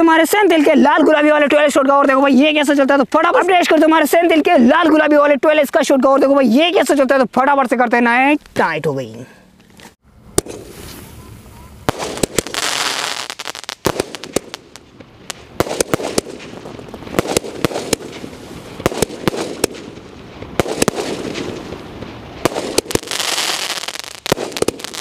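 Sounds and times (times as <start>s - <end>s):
firework bangs and crackles: 10.3s - 25.0s
firework hissing: 10.4s - 25.0s.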